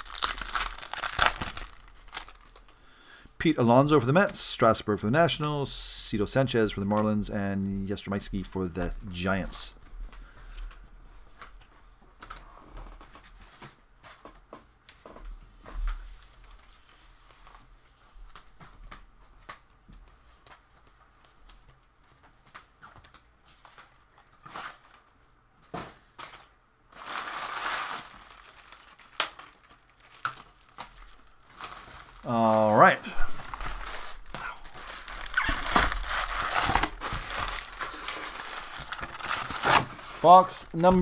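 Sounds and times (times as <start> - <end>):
card packaging crinkling and tearing: 0.0 - 2.7, 26.2 - 41.0.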